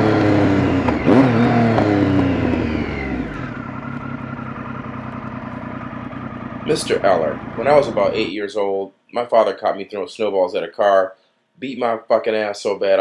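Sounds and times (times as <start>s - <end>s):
motorcycle engine revving: 0.0s - 8.3s.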